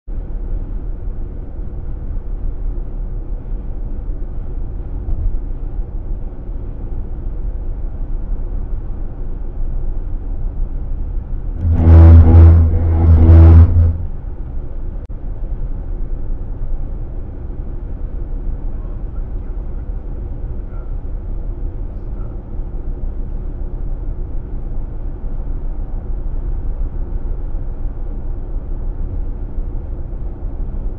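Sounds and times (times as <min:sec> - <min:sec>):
tyre and road noise: 0:11.6 - 0:14.6
tyres on rumble strip: 0:11.6 - 0:15.0.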